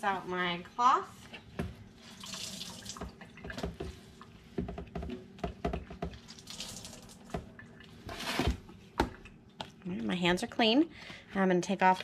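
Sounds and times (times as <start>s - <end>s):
tap water running into sink: 2.2s - 4.0s, 4.6s - 7.5s.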